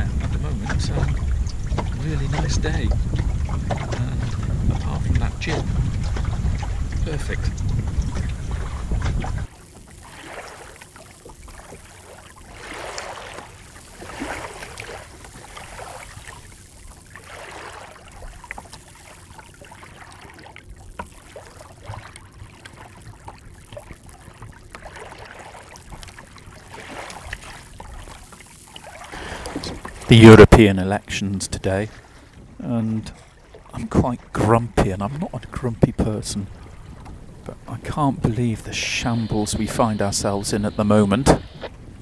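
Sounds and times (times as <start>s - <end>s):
water lapping along boat hull: 0.0s - 42.0s
faint ticks: 18.2s - 30.0s.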